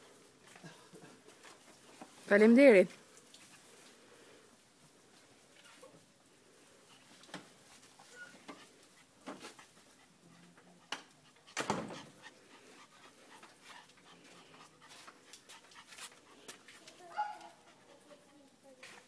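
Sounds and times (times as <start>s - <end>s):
puppies panting: 8.1s - 18.6s.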